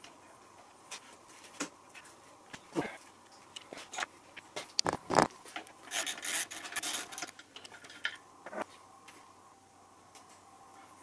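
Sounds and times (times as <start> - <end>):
metal scraping and rubbing: 5.1 - 7.3.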